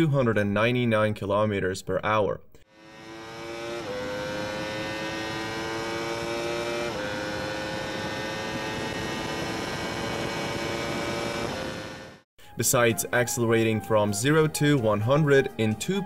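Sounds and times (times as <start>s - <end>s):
motorcycle engine at full throttle: 2.7s - 12.2s.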